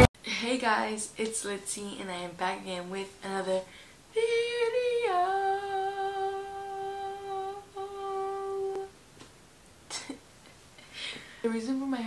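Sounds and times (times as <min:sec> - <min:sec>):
short breath: 0:03.7 - 0:04.0, 0:10.9 - 0:11.4
woman humming through cupped hands: 0:05.1 - 0:08.9.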